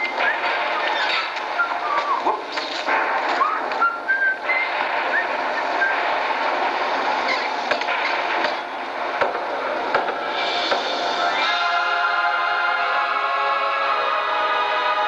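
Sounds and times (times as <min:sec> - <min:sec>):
high whistle-like notes: 0:00.0 - 0:02.4, 0:03.3 - 0:06.5, 0:10.6 - 0:14.2
steady hiss: 0:02.5 - 0:15.0.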